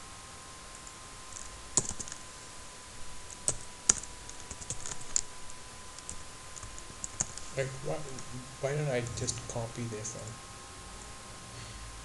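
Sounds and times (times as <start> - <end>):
faint steady whine: 0.0 - 12.0
computer keyboard keystrokes: 1.4 - 2.2, 3.4 - 5.3, 6.0 - 7.4.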